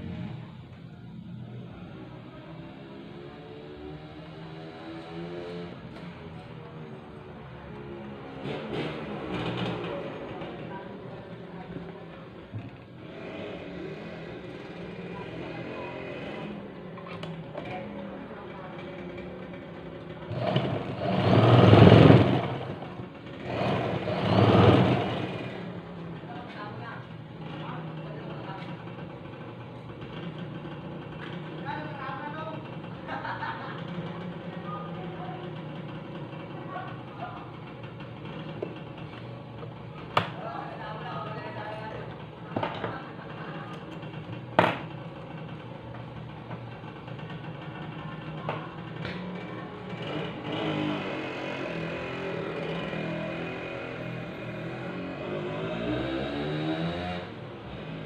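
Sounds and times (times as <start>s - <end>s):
electric sewing machine running: 20.3s - 22.8s, 23.4s - 25.6s.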